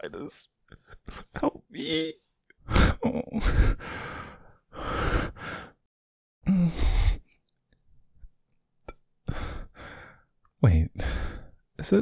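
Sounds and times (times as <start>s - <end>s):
man breathing heavily: 2.7s - 5.9s, 6.5s - 7.3s, 9.3s - 10.3s, 11.0s - 11.6s.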